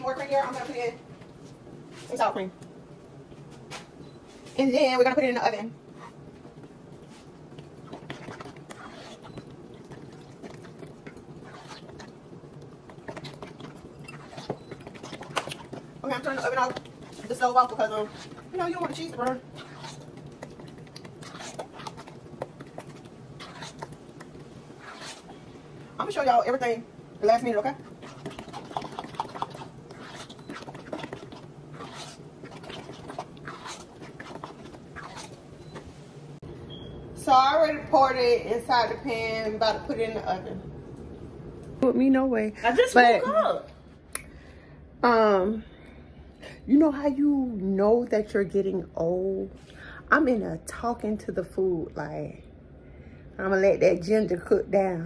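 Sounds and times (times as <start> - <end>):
wet squelches of stirring: 0.0 - 41.9
steady low hum: 0.0 - 55.0.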